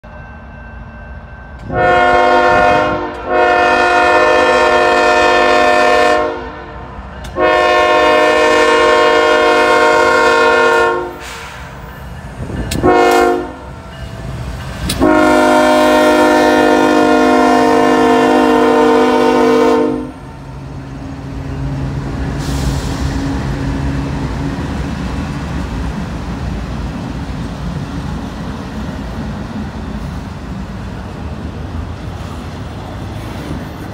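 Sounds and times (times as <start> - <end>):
train wheels on rails: 0.0 - 33.9
locomotive air horn blasts: 1.6 - 11.8, 12.8 - 13.8, 14.9 - 20.3
locomotive engine rumble: 6.6 - 33.9.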